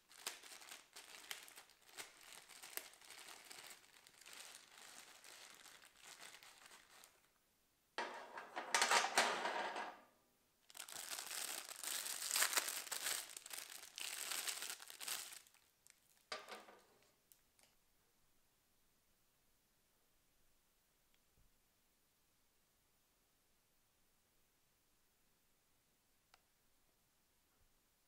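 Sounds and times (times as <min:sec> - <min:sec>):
plastic bags crinkling: 0:00.0 - 0:07.3, 0:10.7 - 0:16.3.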